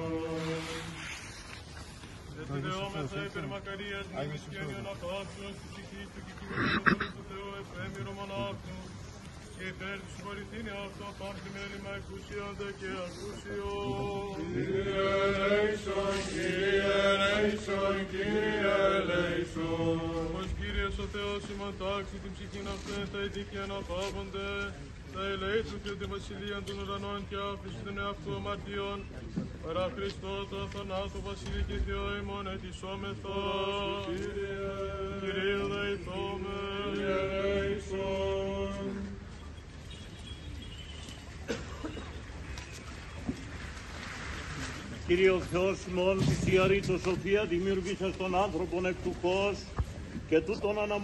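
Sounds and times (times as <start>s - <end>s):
men chanting: 9.6s - 23.6s, 29.8s - 39.2s.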